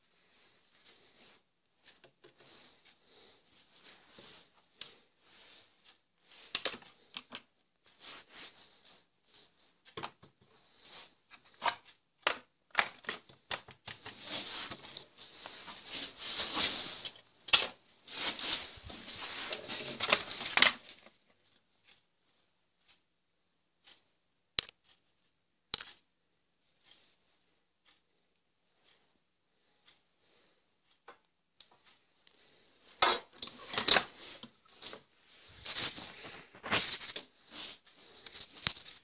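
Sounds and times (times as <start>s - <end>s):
scraping and rustling: 13.9s - 22.0s, 31.8s - 39.0s
objects clicking and tapping: 24.6s - 25.0s, 25.7s - 26.0s, 38.2s - 39.0s.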